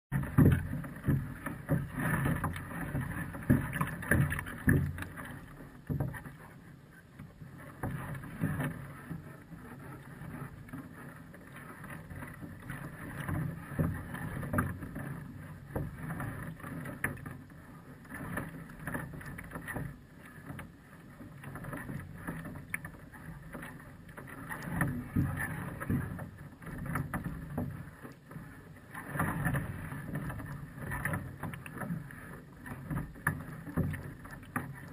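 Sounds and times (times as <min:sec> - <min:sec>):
small waves lapping against platform: 0:00.1 - 0:34.9.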